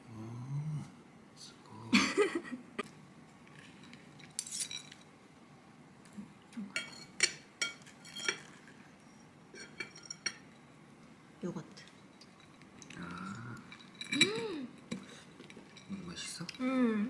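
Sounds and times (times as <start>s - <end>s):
fork and knife clinking on bowl: 6.8s - 10.6s.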